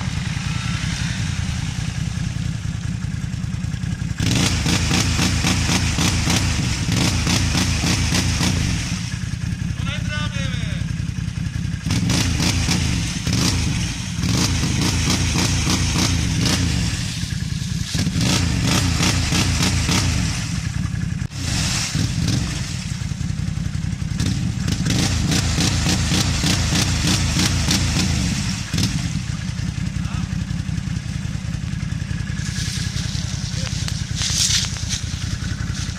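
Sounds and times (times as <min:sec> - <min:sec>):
atv engine revving: 0:00.0 - 0:35.9
tyres churning mud and water: 0:18.0 - 0:20.5, 0:21.3 - 0:23.2, 0:24.2 - 0:29.2.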